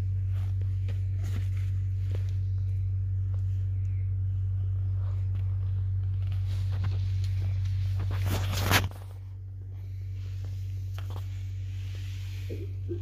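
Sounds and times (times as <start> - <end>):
steady low hum: 0.0 - 13.0
camera rustling against fabric: 0.1 - 3.8, 4.6 - 9.5.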